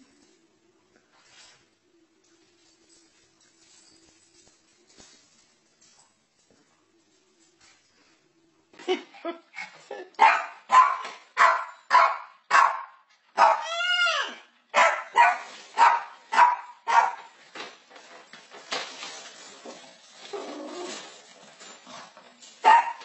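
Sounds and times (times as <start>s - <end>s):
dog barking: 10.2s - 13.7s, 14.8s - 17.2s, 22.6s - 23.0s.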